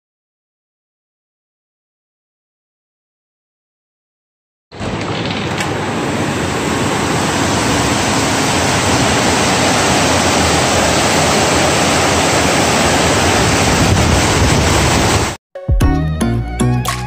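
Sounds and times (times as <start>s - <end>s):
heavy rain pouring: 4.8s - 15.4s
water spilling off roof edge: 4.8s - 15.4s.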